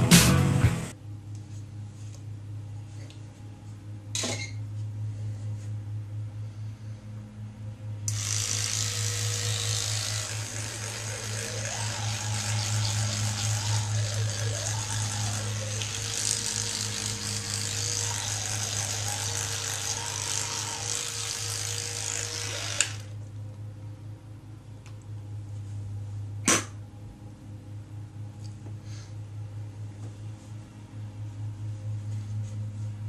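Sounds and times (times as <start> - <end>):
electric toothbrush buzzing: 8.1 - 23.2.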